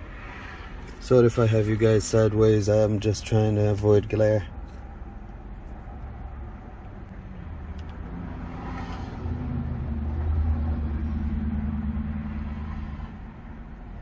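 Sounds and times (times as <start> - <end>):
low vehicle engine rumble: 0.0 - 14.0.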